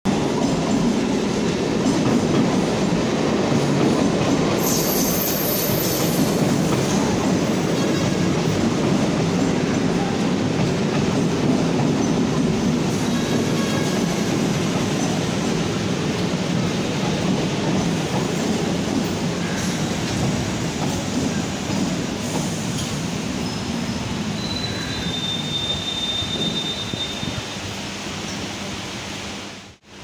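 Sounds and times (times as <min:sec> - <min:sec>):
electric train rumbling: 0:00.1 - 0:30.0
high-pitched train squeal: 0:04.6 - 0:07.1, 0:12.9 - 0:15.2, 0:19.4 - 0:20.1, 0:22.8 - 0:27.6.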